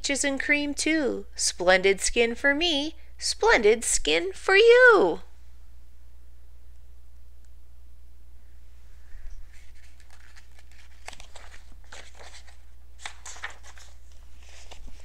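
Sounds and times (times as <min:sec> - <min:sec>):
low steady hum: 0:00.0 - 0:15.0
paper pages rustling: 0:09.2 - 0:15.0.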